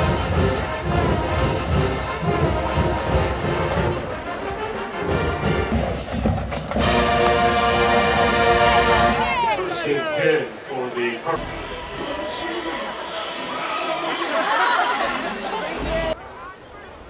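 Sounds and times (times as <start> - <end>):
music with beat and brass: 0.0 - 9.2.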